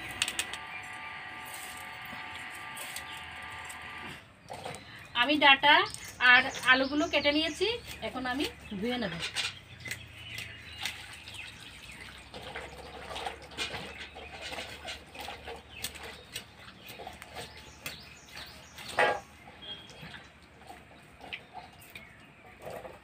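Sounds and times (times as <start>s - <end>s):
water splashing in bowl: 5.8s - 22.2s.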